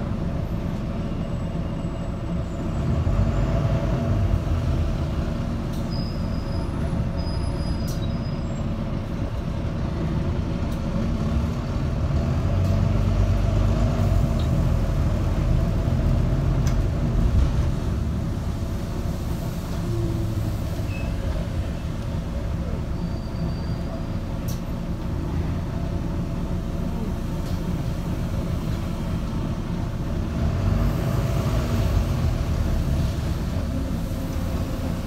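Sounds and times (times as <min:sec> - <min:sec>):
bus engine and road noise: 0:00.0 - 0:35.0.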